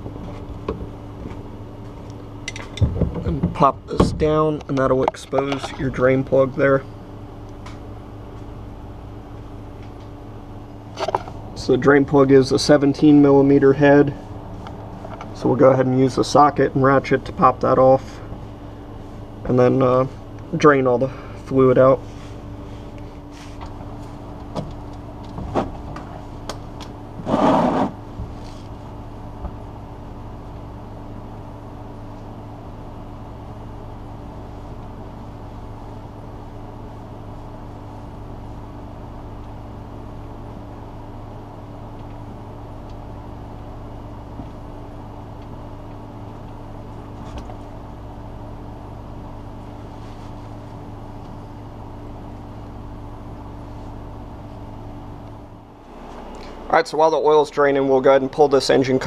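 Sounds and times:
steady low hum: 0.0 - 59.0
short rasp: 27.2 - 28.0.

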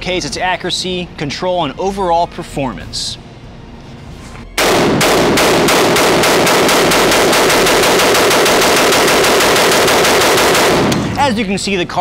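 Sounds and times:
rapid automatic gunfire: 4.6 - 11.2.

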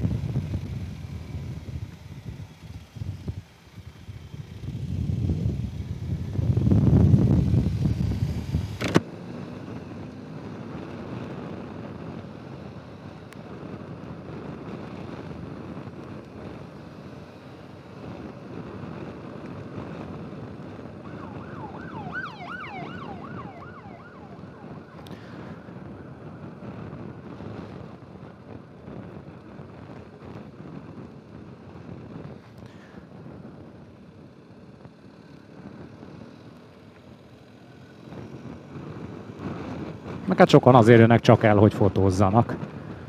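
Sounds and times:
wind buffeting microphone: 0.0 - 8.8, 18.0 - 32.4
traffic noise: 0.0 - 43.0
sharp click: 8.8 - 9.1
siren warbling: 21.0 - 25.0.

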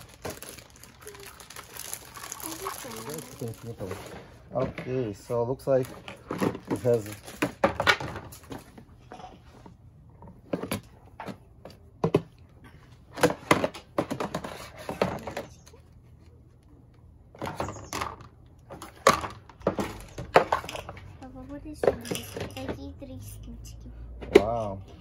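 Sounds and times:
plastic toy parts clattering: 0.0 - 4.8, 5.7 - 8.7, 17.4 - 21.0.

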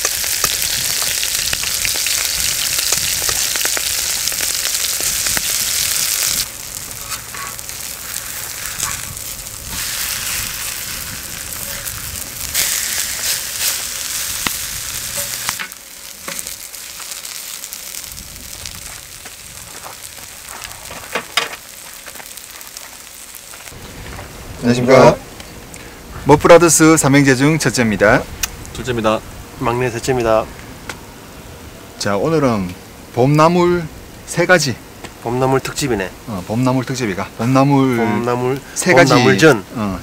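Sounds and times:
pancakes sizzling in oil: 0.0 - 24.2.

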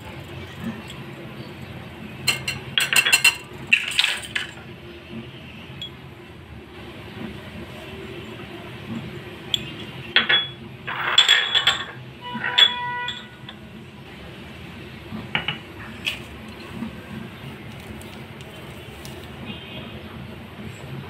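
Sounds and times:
ringing glass clink: 9.6 - 13.5
glass bowls knocking: 9.6 - 13.6.

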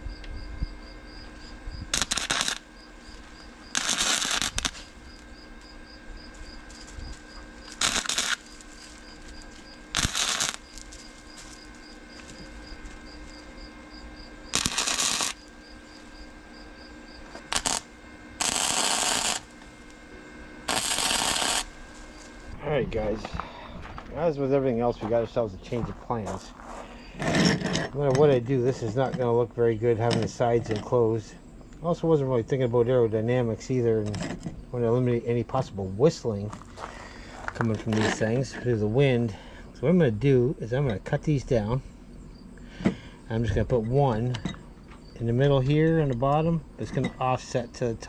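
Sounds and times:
welding arc bursts: 1.9 - 5.7, 6.4 - 13.8, 14.5 - 16.4, 17.2 - 20.0, 20.6 - 22.3.

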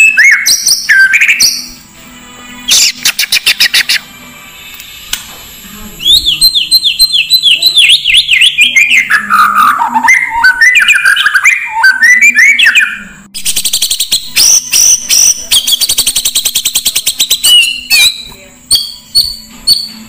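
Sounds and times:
songbird whistling and trilling: 0.0 - 1.8, 6.0 - 20.0.

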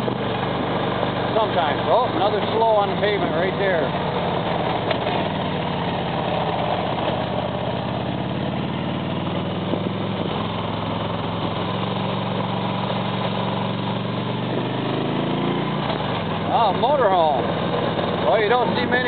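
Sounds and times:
motorcycle engine running: 0.0 - 19.0
wind and road noise: 0.0 - 19.0.

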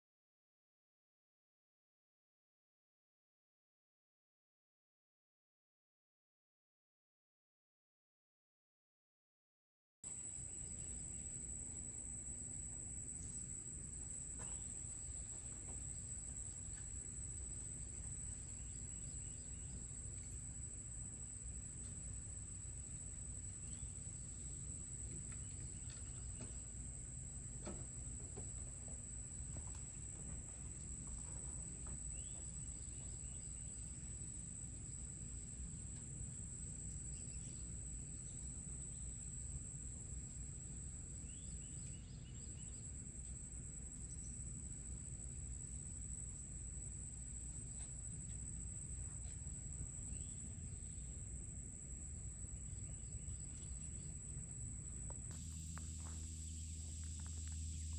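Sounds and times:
insects droning: 10.1 - 57.9
low background rumble: 45.0 - 57.9.

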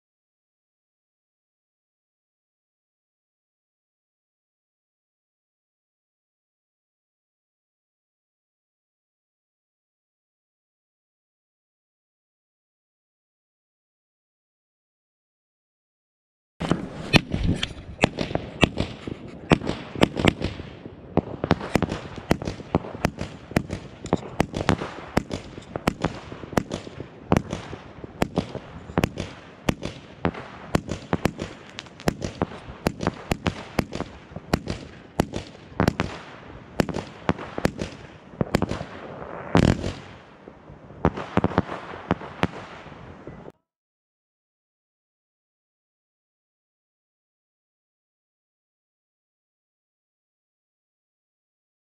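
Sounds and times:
firework launch thumps: 16.6 - 20.6, 21.2 - 36.1
firework cracks: 16.6 - 40.4, 41.0 - 43.4.

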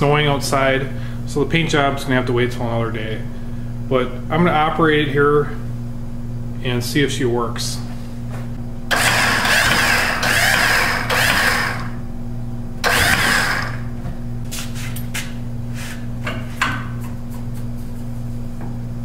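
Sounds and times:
hydraulic pump motor whining: 8.9 - 12.0, 12.8 - 14.0.

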